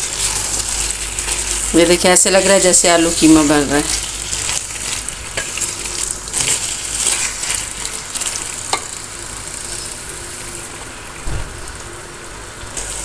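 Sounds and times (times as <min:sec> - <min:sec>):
vegetables sizzling in a pan: 0:00.0 - 0:13.0
wooden spoon scraping: 0:03.2 - 0:08.8.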